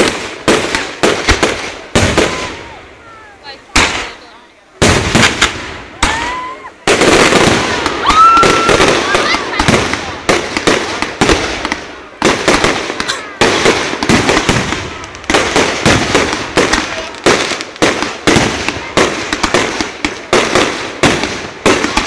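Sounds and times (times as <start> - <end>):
fireworks bursting with crackle: 0.0 - 22.0.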